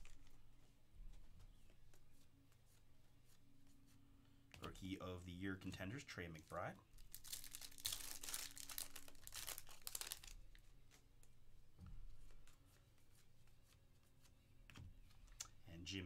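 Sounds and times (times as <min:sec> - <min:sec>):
foil wrapper tearing and crinkling: 0:07.0 - 0:10.4.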